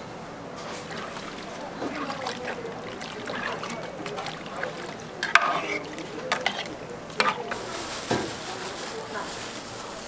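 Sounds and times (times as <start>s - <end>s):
utensils knocking and scraping cookware: 5.2s - 8.2s.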